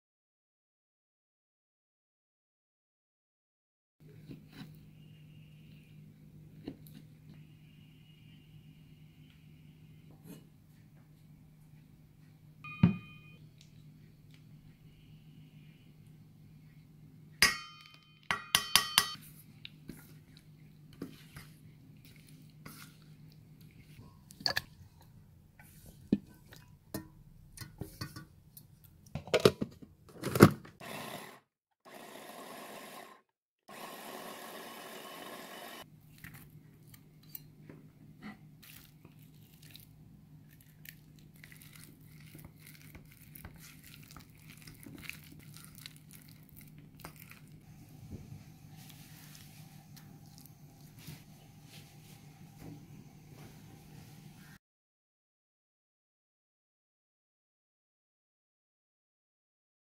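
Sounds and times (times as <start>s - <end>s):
paste squelching: 19.8s - 25.1s, 40.5s - 47.6s
food chopper whirring: 30.8s - 35.8s.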